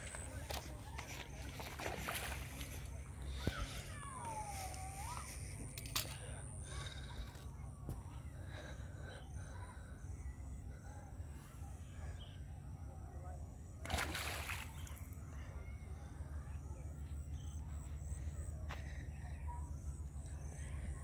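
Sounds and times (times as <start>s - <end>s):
splash in river water: 1.3s - 2.8s, 13.8s - 15.1s.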